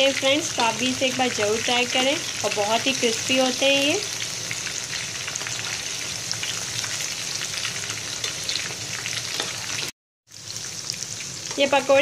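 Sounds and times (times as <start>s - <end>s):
food deep-frying in hot oil: 0.0s - 12.0s.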